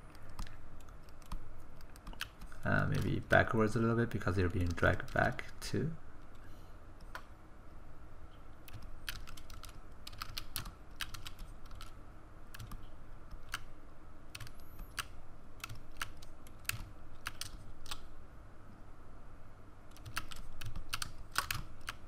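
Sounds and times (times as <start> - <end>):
steady low hum: 0.0 - 22.0
keyboard and mouse clicking: 0.1 - 3.2, 7.0 - 7.3, 8.6 - 13.7, 14.3 - 18.1, 19.9 - 22.0.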